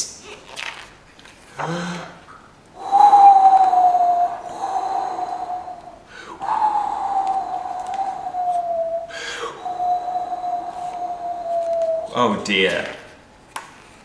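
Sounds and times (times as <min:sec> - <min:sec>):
man imitating howling wind: 0:01.6 - 0:13.0.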